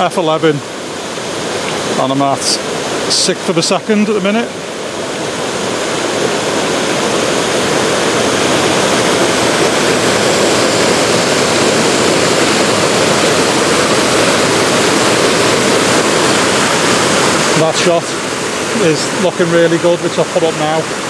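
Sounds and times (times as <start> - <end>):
river water rushing over rocks: 0.0 - 21.0.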